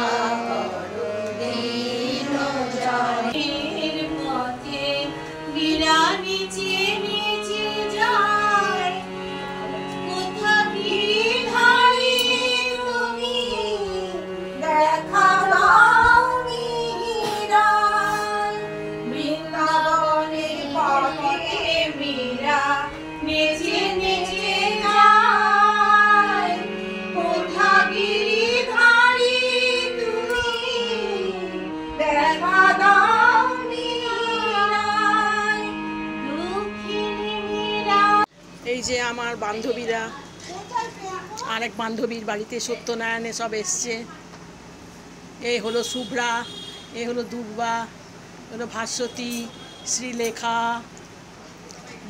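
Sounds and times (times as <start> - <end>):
woman singing: 0.0 - 9.1, 10.0 - 40.1
held accompanying notes: 0.0 - 38.3.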